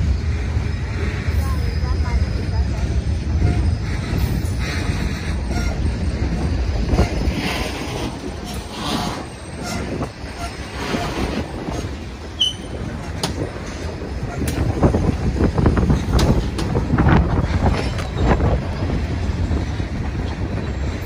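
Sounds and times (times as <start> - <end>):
high wheel squeal: 0.0 - 15.2
train wheels rumbling on rail: 0.0 - 21.0
wheels clicking over rail joints: 2.5 - 21.0.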